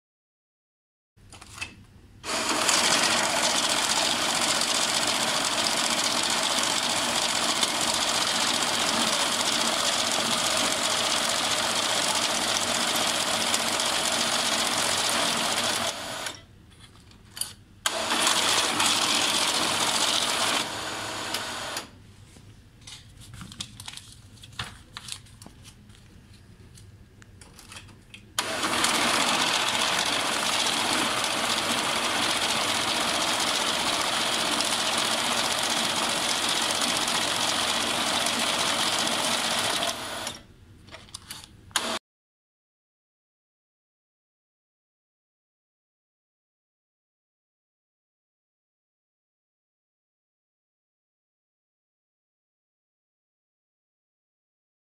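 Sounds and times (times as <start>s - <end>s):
banknote counting machine whirring: 2.2s - 16.4s, 17.9s - 21.9s, 28.4s - 40.4s.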